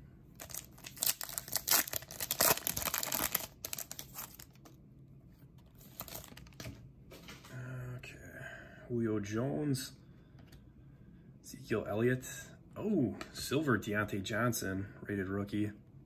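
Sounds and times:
foil wrapper tearing and crinkling: 0.4 - 4.6, 5.8 - 6.6
cards rustling: 0.4 - 4.8, 5.6 - 6.8.

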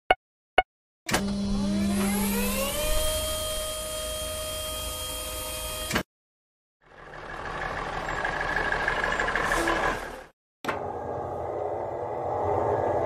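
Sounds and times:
cartoon crane motor whir: 1.1 - 6.1
truck engine: 6.8 - 10.3.

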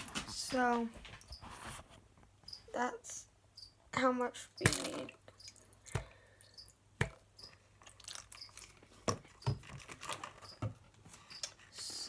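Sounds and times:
plastic bottle clicks and knocks: 7.0 - 7.3.

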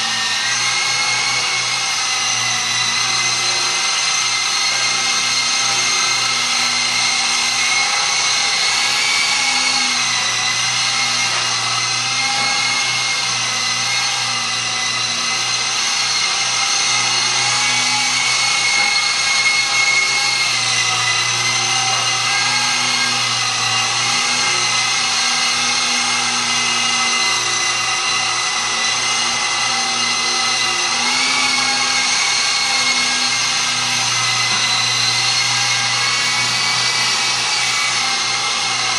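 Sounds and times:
rc helicopter motor whine: 0.0 - 38.9.

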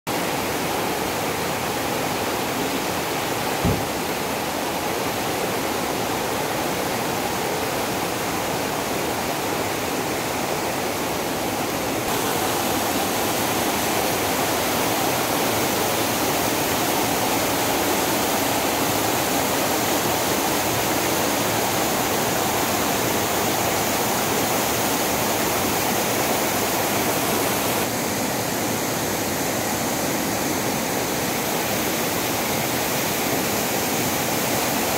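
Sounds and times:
waterfalls cascading over rocks: 0.1 - 34.9
short knock: 3.6 - 4.0.

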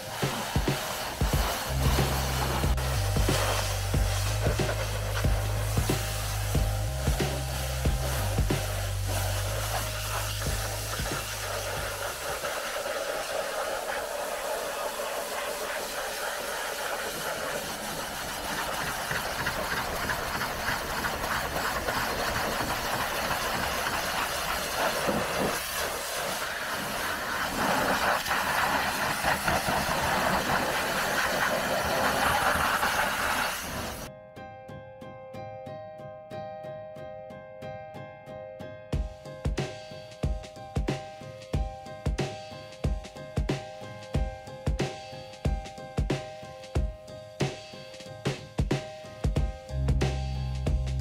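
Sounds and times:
pressure washer spraying water: 0.0 - 34.1.

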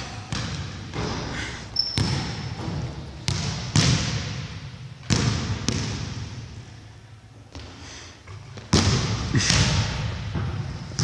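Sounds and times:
basketballs bouncing on hardwood: 0.3 - 6.4, 8.6 - 11.0
high squeak: 1.7 - 2.5.

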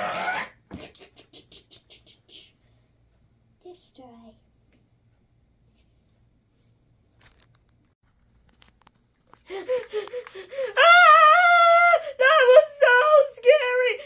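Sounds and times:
high-pitched vocal cry: 0.0 - 0.6.

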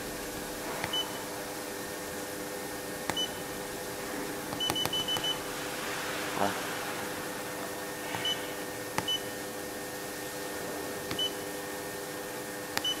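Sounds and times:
steady low hum: 0.0 - 13.0
click: 12.8 - 13.0.

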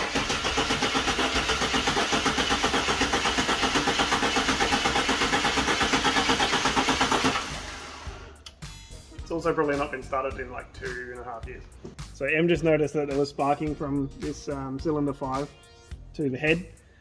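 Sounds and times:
car engine cranking on starter: 0.0 - 8.4.

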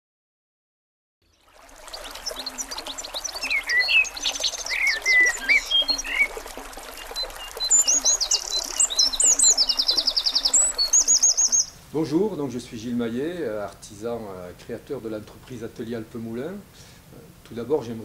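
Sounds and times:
wild birds singing: 1.3 - 12.1
low repeated bird call: 1.7 - 11.8.

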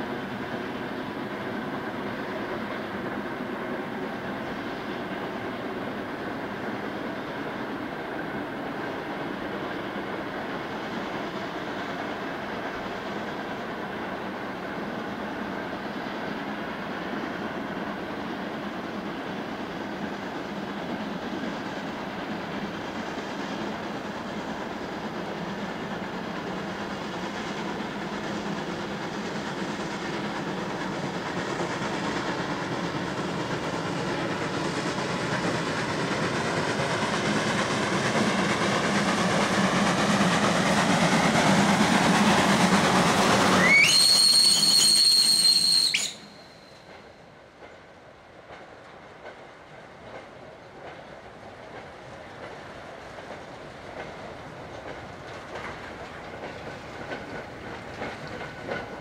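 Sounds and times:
steam locomotive running: 0.0 - 59.0
steam whistle blast: 43.4 - 46.9.

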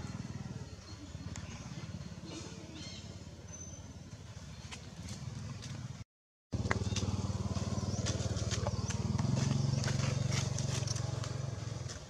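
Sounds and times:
small engine humming: 6.6 - 12.0
dry leaves crackling: 6.7 - 11.9.

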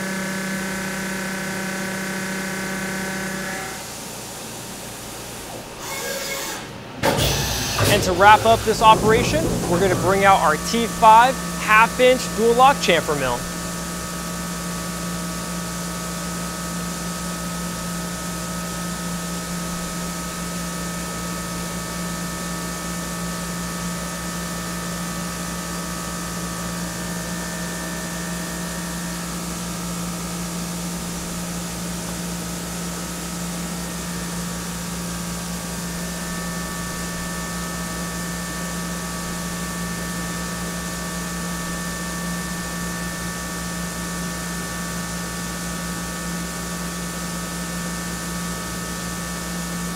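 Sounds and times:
low machine hum: 7.8 - 13.7.

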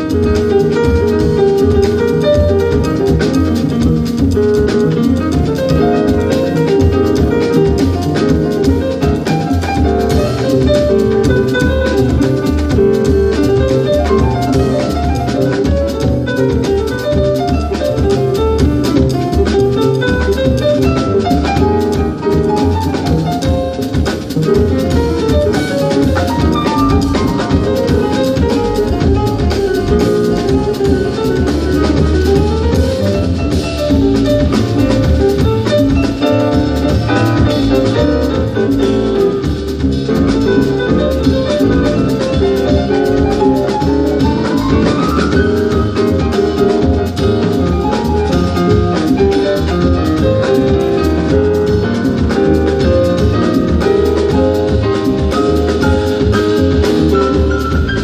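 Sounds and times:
jazz piano bass and drums: 0.0 - 58.0.

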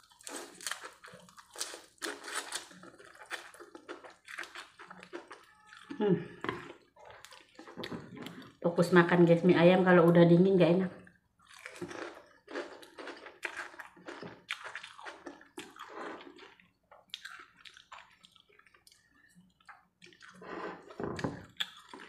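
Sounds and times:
wet chewing and mouth smacking: 0.0 - 8.6, 11.4 - 22.0
slurping noodles: 20.3 - 21.0.

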